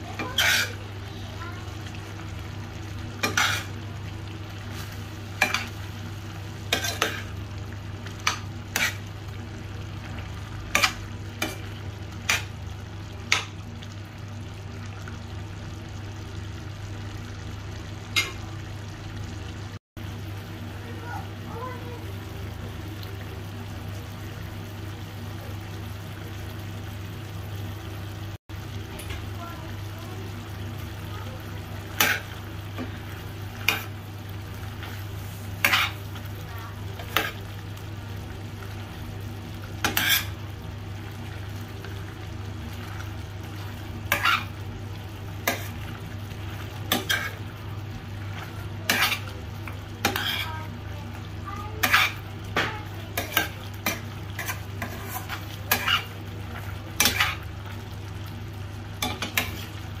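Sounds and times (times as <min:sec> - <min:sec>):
pan sizzling: 0:00.0 - 1:00.0
metal spoon scraping pan: 0:00.2 - 0:00.8, 0:48.9 - 0:49.3, 0:50.0 - 0:50.6, 0:51.8 - 0:52.2, 0:53.2 - 0:56.1, 0:57.0 - 0:57.4.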